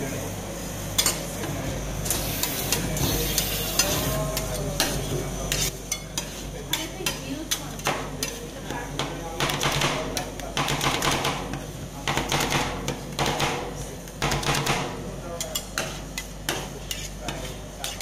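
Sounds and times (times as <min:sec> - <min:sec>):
spatulas scraping on steel plate: 0:15.4 - 0:18.0.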